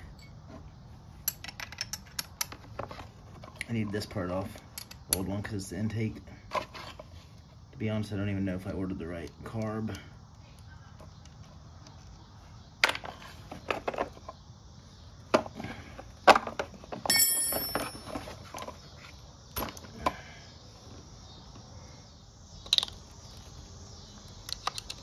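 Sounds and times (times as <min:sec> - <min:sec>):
metal parts clicking together: 0:01.2 - 0:02.6, 0:04.7 - 0:05.2
ringing metallic clink: 0:17.1 - 0:18.1.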